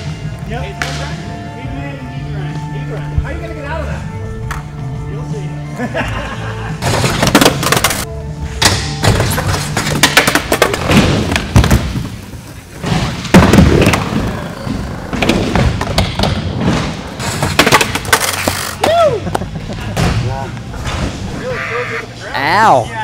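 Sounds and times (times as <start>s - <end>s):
skateboards clacking and thudding: 6.8s - 8.1s, 8.8s - 19.0s
skateboards rolling: 6.8s - 8.1s, 9.0s - 21.6s.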